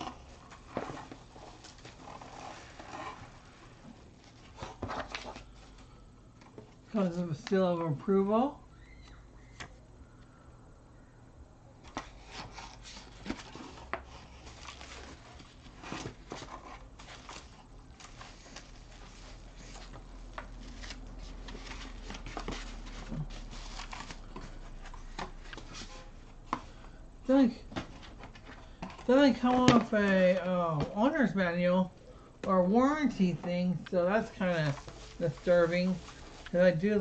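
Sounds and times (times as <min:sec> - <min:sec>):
bubble wrap and box crinkling: 0:00.0 - 0:05.8, 0:12.0 - 0:25.9, 0:34.1 - 0:37.0.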